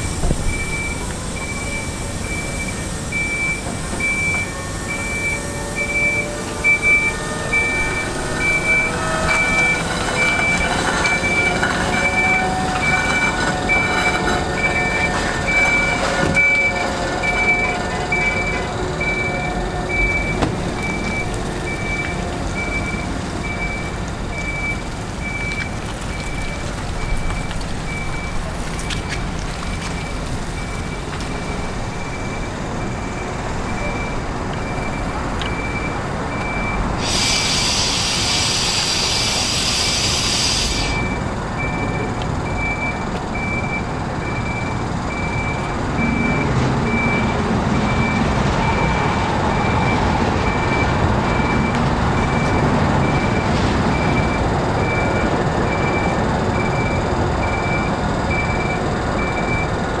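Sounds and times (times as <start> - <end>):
warning alarm beeping: 0.0 - 29.0, 29.7 - 59.8
engine running: 0.0 - 60.0
air hissing: 36.7 - 41.3.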